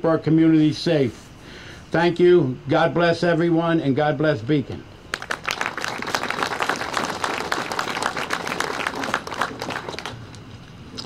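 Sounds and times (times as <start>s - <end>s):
crowd applauding: 5.1s - 10.4s.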